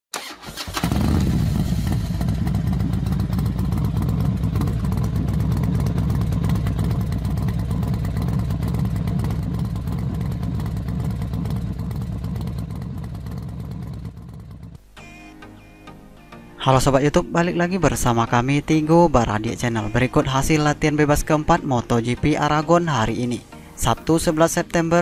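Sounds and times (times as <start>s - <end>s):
racing motorcycle engines revving: 0.7s - 14.8s.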